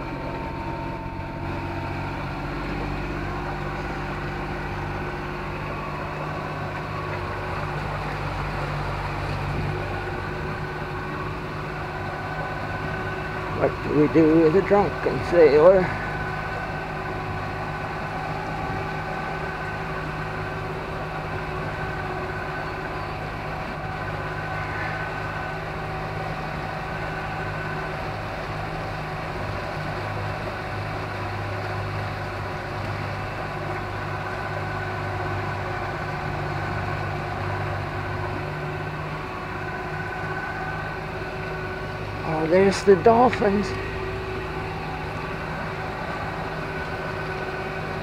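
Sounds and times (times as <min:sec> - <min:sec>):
outboard motor humming: 0:00.0 - 0:48.0.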